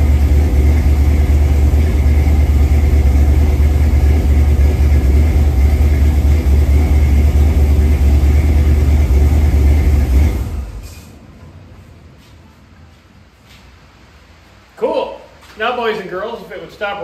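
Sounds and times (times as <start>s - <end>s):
pickup engine idling: 0.0s - 11.2s.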